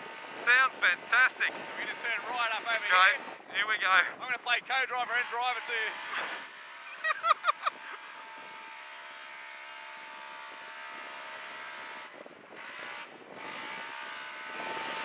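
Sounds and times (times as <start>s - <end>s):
vehicle engine running: 0.0s - 15.0s
wind noise: 12.1s - 15.0s.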